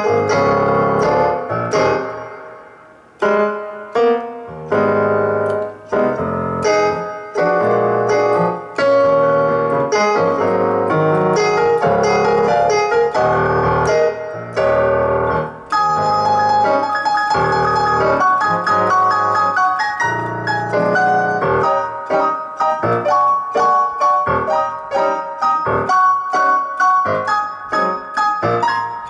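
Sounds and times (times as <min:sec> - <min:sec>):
piano chords: 0:00.0 - 0:29.0.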